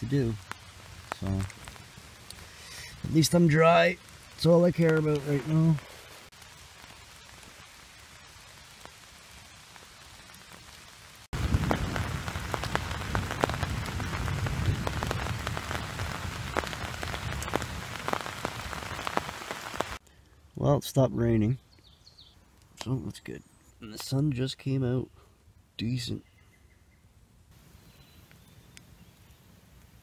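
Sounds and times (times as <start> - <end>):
rain drumming on fabric: 0.0 - 20.0.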